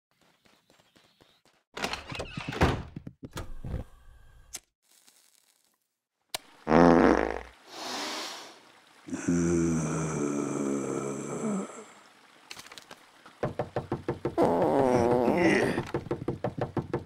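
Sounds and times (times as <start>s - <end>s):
cartoon thuds and knocks: 13.4s - 17.0s.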